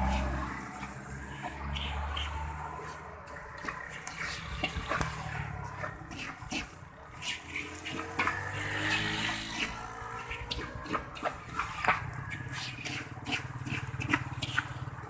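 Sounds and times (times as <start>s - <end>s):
grainy rush of salt stirring: 0.0s - 15.0s
metal scraping on iron: 0.0s - 15.0s.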